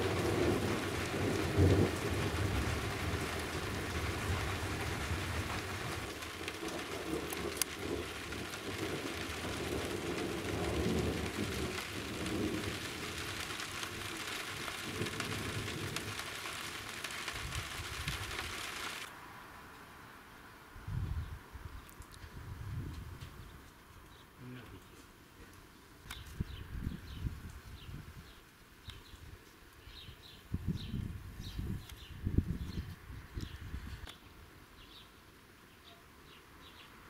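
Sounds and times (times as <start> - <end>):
low rumbles of thunder: 0.0 - 16.3
rain falling on roofs: 0.0 - 19.2.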